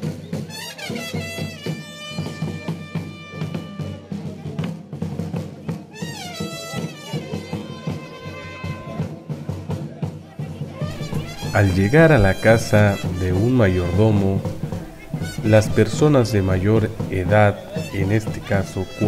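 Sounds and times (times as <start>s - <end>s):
large drum beating: 9.0s - 19.0s.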